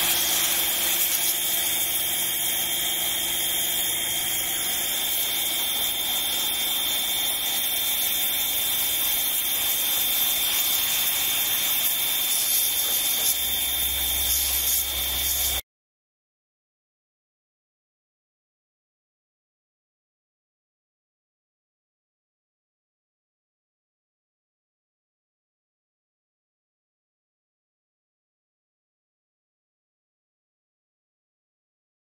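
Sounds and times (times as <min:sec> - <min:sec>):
pressure washer machine hum: 0:00.0 - 0:15.6
pressure washer spray hissing: 0:00.0 - 0:15.6.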